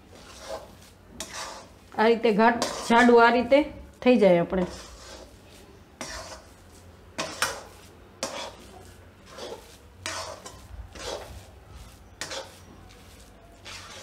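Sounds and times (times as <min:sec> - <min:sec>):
metal spatula scraping a pan: 0:00.0 - 0:03.5, 0:04.6 - 0:14.0.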